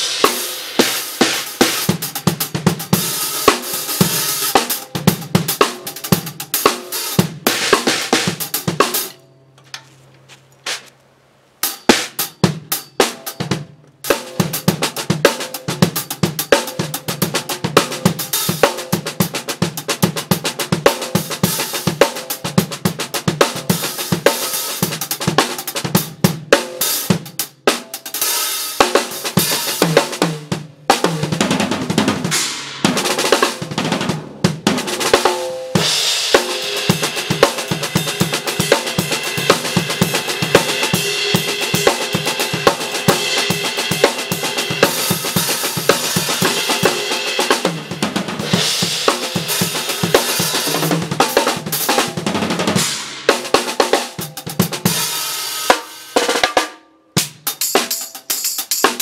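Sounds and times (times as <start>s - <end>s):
acoustic drum kit playing: 0.0s - 9.7s, 10.3s - 10.9s, 11.6s - 59.0s
wash of cymbals: 35.8s - 51.4s.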